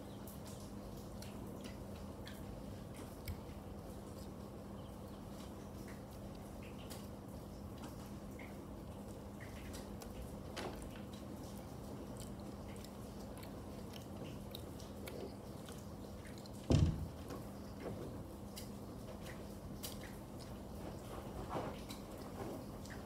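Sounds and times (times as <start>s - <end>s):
child chewing bread: 0.0s - 23.0s
low thump: 16.7s - 17.2s.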